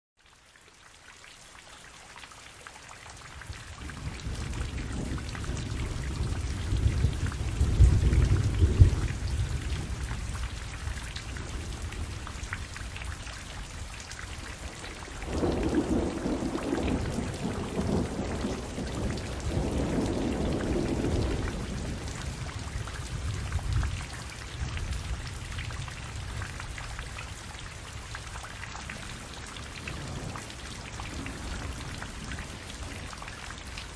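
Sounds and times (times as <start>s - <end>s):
steady rain falling: 0.2s - 33.9s
thunder rumbling: 3.8s - 13.1s, 14.5s - 26.4s.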